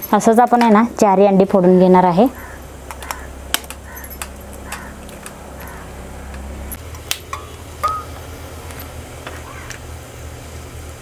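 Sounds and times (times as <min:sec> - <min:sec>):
low hum: 0:02.1 - 0:11.0
ladle knocking steel bowl: 0:07.3 - 0:08.2.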